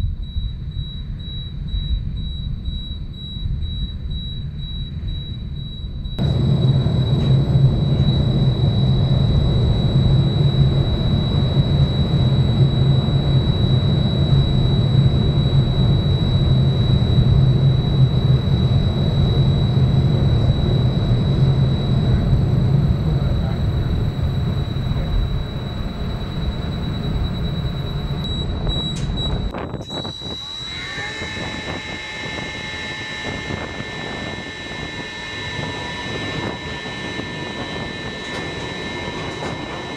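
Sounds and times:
high whine: 0.0 - 39.9
train rumbling on track: 6.2 - 14.4.

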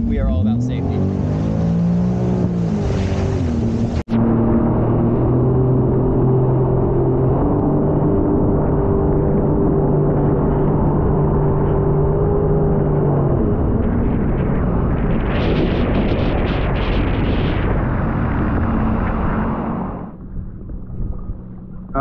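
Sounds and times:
watercraft engine drone: 0.0 - 22.0
rushing water: 0.9 - 4.1.

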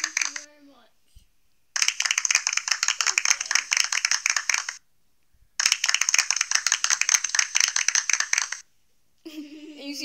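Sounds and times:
recorded applause from phone speaker: 0.0 - 0.5, 1.8 - 4.8, 5.6 - 8.6.

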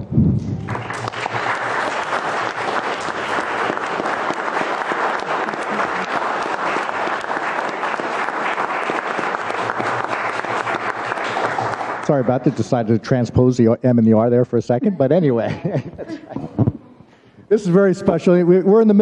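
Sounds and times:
crowd applauding: 0.4 - 13.2.

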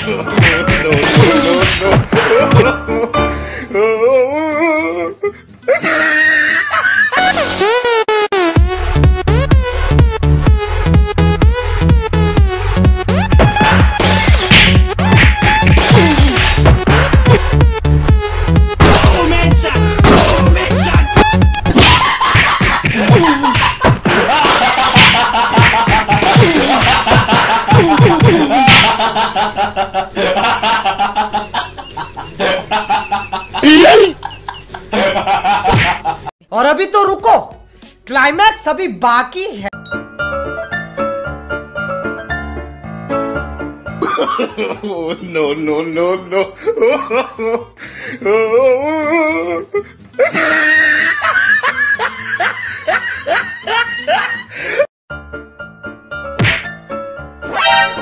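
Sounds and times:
music: 0.0 - 29.4, 35.8 - 58.0
loud laughter: 5.7 - 7.6, 21.8 - 36.3, 44.0 - 45.3, 50.2 - 54.8.

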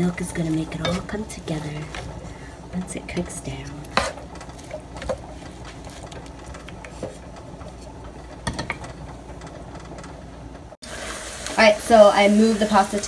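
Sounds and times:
steady low hum: 0.0 - 10.8
wooden spoon knocking in pan: 0.4 - 7.8.

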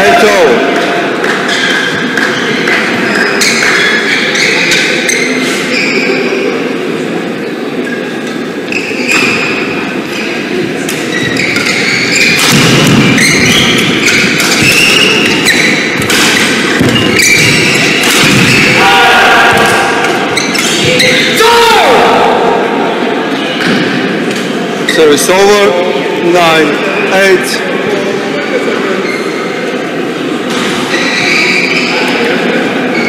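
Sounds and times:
rackets hitting shuttlecock: 0.8 - 3.8, 10.8 - 18.8, 19.5 - 21.2
shoes squeaking on court floor: 1.2 - 6.4, 7.8 - 18.8, 20.2 - 21.4, 28.9 - 29.8, 30.5 - 33.0.

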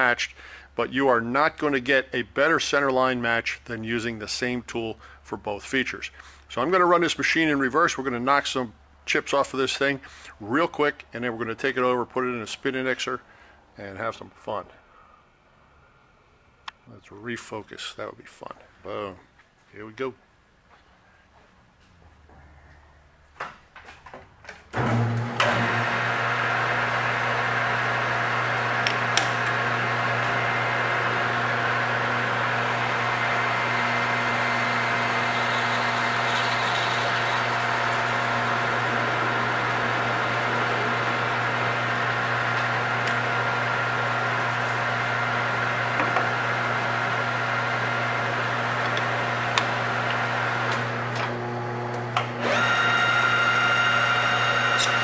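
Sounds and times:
metal lathe humming: 24.8 - 55.0
cutting tool on brass: 32.8 - 41.2, 54.7 - 55.0.

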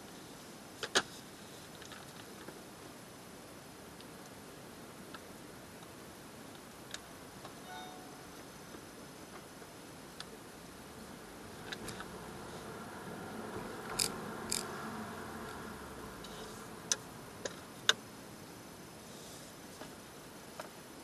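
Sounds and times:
low road and engine noise: 10.2 - 19.8.

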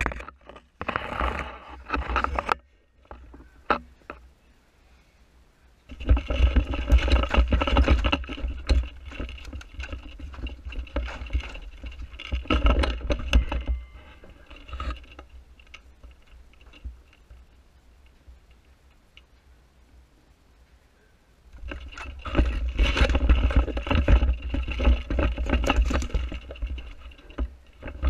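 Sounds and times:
gear rustling and scraping: 0.0 - 4.2, 5.9 - 19.3, 21.5 - 28.0
small ticks: 14.8 - 19.5.

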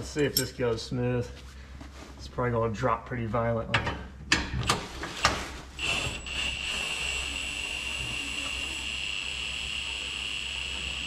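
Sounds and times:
cordless power tool motor whining: 5.8 - 11.0.

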